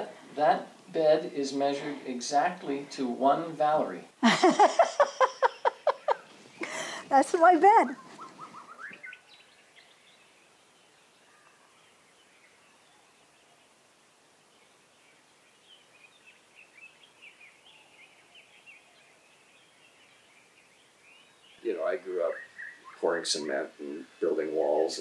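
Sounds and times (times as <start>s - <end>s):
high bird chirps: 5.2s - 10.2s, 21.1s - 23.2s.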